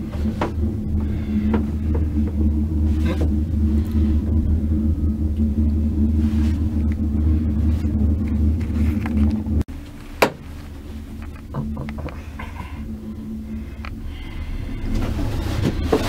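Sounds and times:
gondola cabin rumbling on cable: 0.0 - 16.0.

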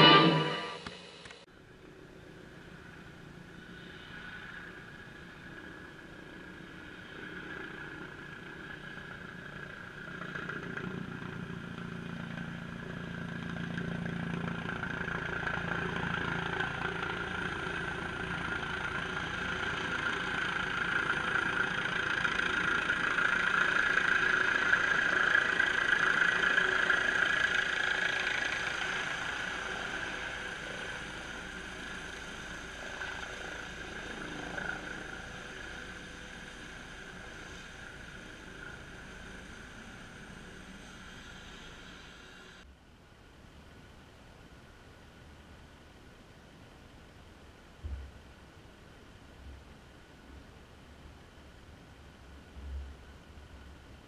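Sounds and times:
helicopter coming in to land: 0.0 - 42.6.

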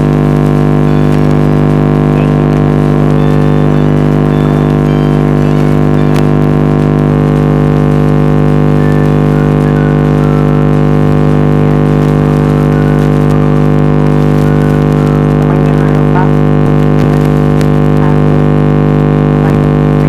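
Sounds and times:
loud droning hum: 0.0 - 20.0.

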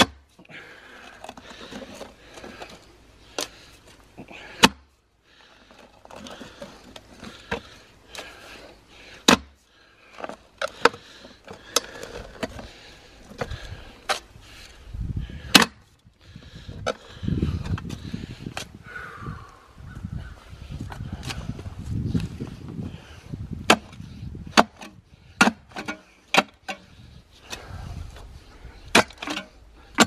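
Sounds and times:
dirt crunching and scraping: 0.0 - 30.0
post hole digger clanking: 28.8 - 30.0.

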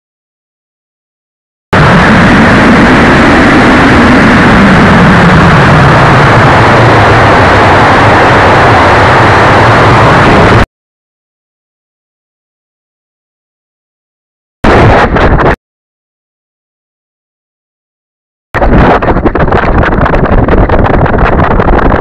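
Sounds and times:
distorted rush of air: 1.8 - 10.7, 14.6 - 15.6, 18.6 - 22.0
low drone falling in pitch: 1.8 - 10.7.

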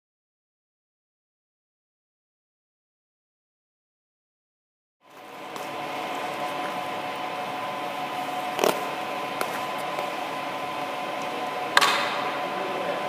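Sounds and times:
steady mechanical hum: 5.0 - 13.0.

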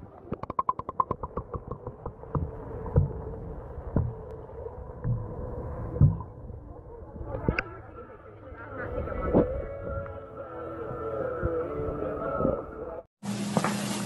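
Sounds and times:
muffled underwater clicks: 0.1 - 3.3
low underwater thumps: 0.5 - 6.6
steady underwater hum: 1.1 - 9.2.

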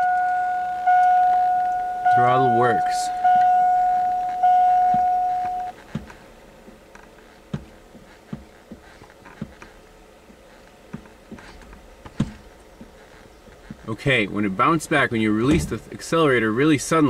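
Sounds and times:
dashboard warning chime: 0.0 - 5.8.

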